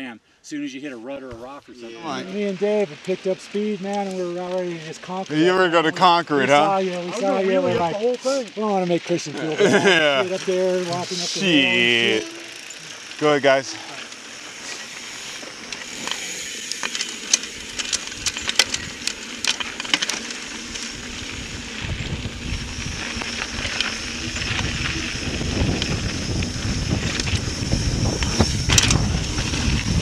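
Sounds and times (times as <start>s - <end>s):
bike tyres crunching over dirt: 1.2s - 30.0s
bike clicks and rattles: 2.4s - 7.1s, 7.9s - 11.2s, 11.8s - 30.0s
wind buffeting microphone: 20.9s - 30.0s.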